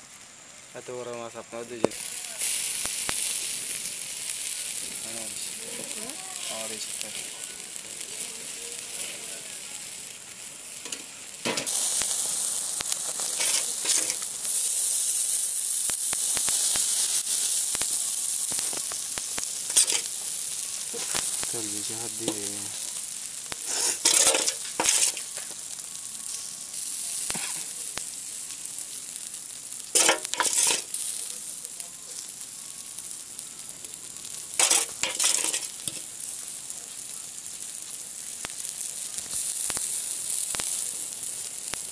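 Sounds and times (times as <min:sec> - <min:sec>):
fish sizzling on grill: 0:00.0 - 0:41.9.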